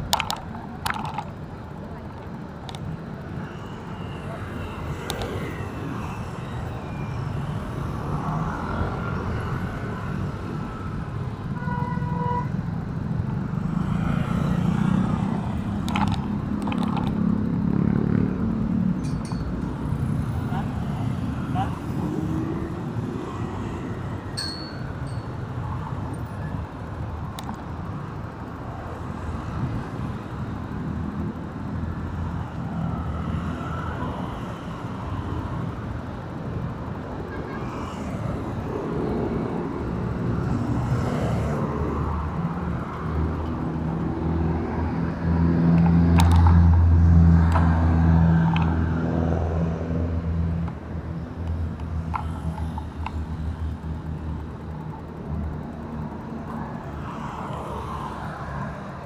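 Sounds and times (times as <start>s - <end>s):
city road traffic: 0.0s - 59.0s
large vehicle engine close by: 12.6s - 59.0s.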